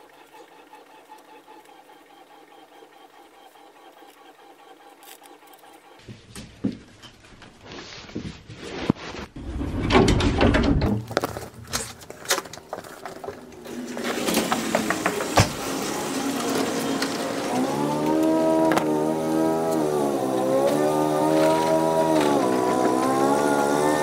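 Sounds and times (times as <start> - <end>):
garage door opener humming: 0.0 - 6.2, 12.6 - 24.0
door opening and closing: 9.4 - 12.5, 13.6 - 17.9.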